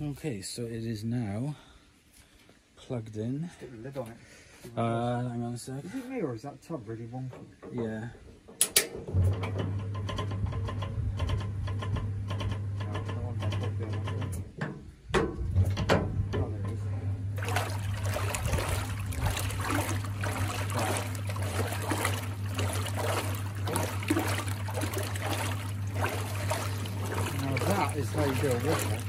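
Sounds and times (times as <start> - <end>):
washing machine electric hum: 9.0 - 29.0
water sloshing in tub: 17.3 - 29.0.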